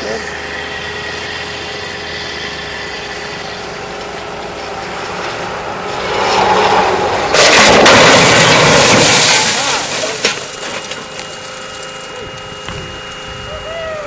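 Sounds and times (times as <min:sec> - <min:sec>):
truck engine running: 0:00.0 - 0:14.0
loud crash into barrier: 0:07.3 - 0:10.9.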